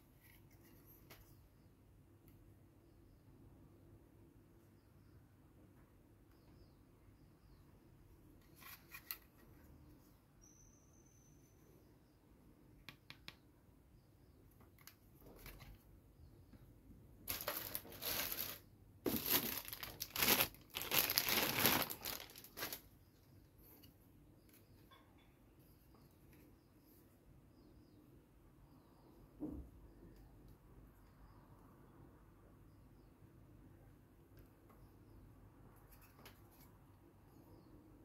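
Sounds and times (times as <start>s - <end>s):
plastic packaging crinkling: 17.3s - 22.9s.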